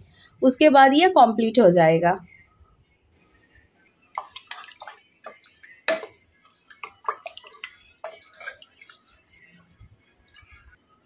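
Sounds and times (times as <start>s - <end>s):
wet sloshing of stirred curry: 4.2s - 10.8s
spatula knocking against pot: 5.2s - 8.6s.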